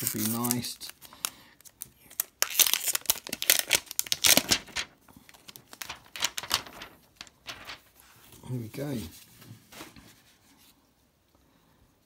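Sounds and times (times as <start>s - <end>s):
plastic film crinkling and tearing: 0.0s - 7.9s.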